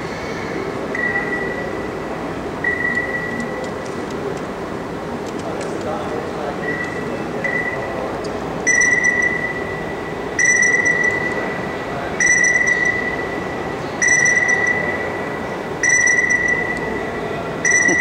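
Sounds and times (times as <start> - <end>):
electronic radar ping: 8.7 - 11.6, 12.2 - 18.0.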